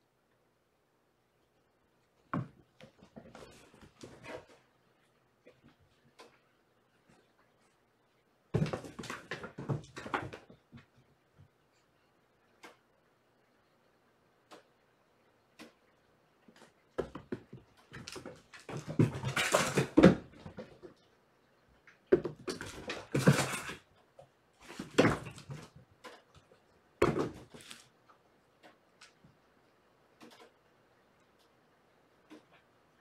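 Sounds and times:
kittens scrabbling on hardwood floor: 2.3 - 4.7, 8.5 - 11.0, 16.5 - 21.0, 22.1 - 23.9, 24.6 - 27.9.

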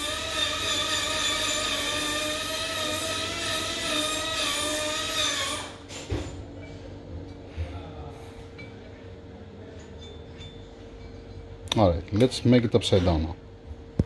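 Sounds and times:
motor whine: 0.0 - 5.9.

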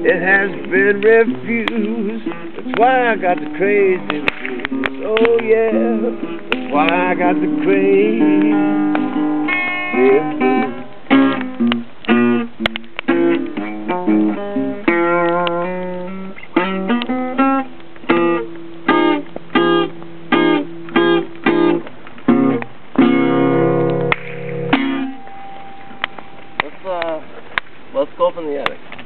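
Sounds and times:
acoustic blues guitar: 0.0 - 26.9.

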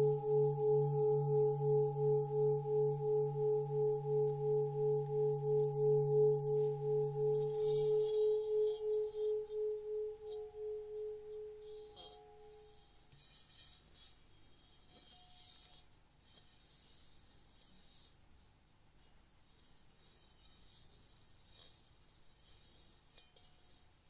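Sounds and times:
hands rubbing bowl: 0.0 - 12.2
singing bowl ringing: 0.0 - 12.8.

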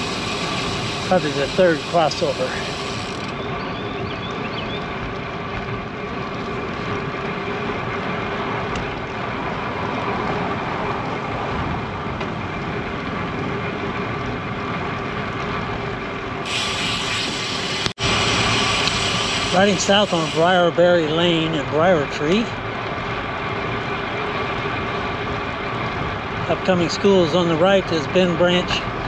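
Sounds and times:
bike tyres rolling on concrete: 0.0 - 29.0.

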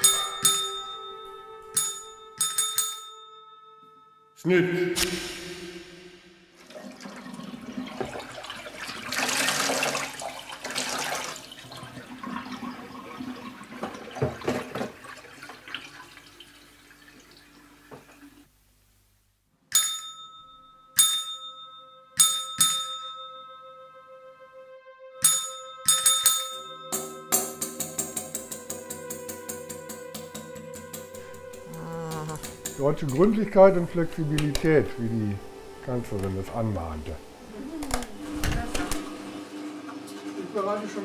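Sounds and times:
jingle of bright struck notes: 0.0 - 4.4, 19.8 - 24.1, 25.2 - 33.9
toilet flushing: 6.5 - 18.5
water draining: 6.6 - 18.4.

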